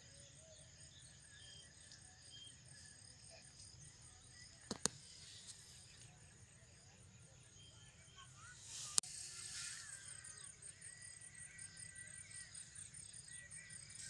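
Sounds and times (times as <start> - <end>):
sharp clicks: 4.6 - 5.0.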